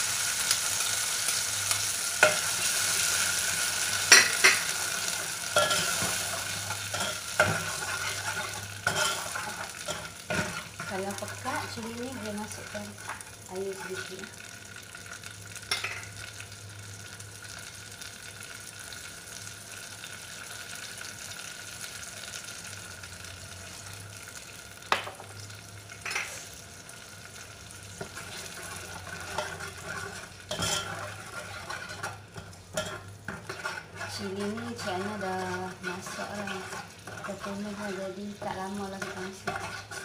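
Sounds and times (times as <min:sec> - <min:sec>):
paste sizzling in oil: 0:00.0 - 0:40.0
spatula stirring in pan: 0:01.2 - 0:13.3, 0:27.9 - 0:40.0.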